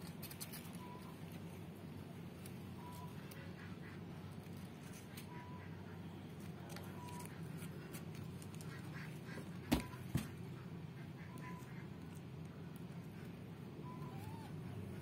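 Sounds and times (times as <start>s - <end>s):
low steady hum: 0.0s - 15.0s
kittens mewing: 13.8s - 15.0s.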